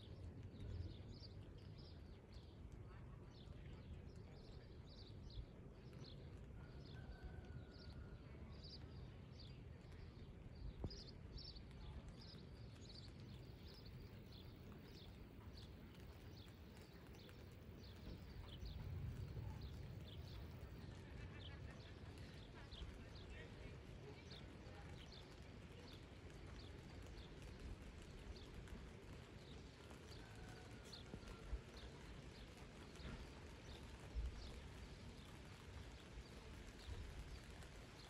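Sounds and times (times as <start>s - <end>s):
low steady rumble: 10.5s - 24.2s.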